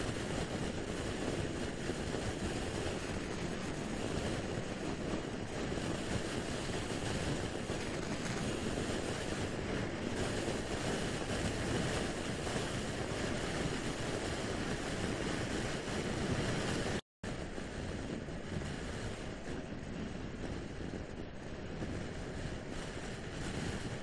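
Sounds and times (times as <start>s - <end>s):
wind roaring over microphone: 0.0s - 24.0s.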